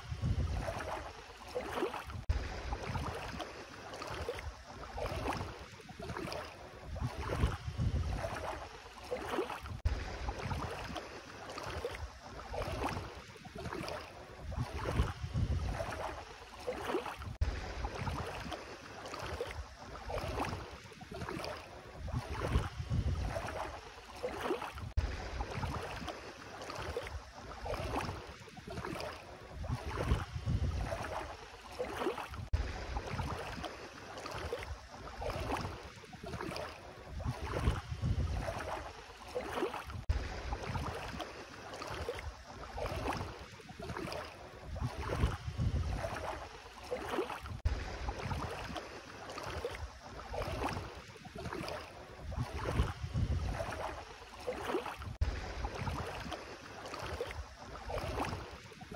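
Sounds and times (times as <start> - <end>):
wind rumbling on microphone: 0.0 - 1.2, 2.0 - 3.4, 4.4 - 8.7, 9.6 - 11.0, 13.7 - 16.2, 17.2 - 18.6, 19.6 - 23.8, 24.7 - 26.1, 28.8 - 31.4, 32.3 - 33.6, 36.4 - 39.0, 39.9 - 41.3, 42.2 - 46.6, 47.4 - 48.8, 49.8 - 54.1, 55.0 - 56.4
footsteps splashing in water: 0.0 - 58.9.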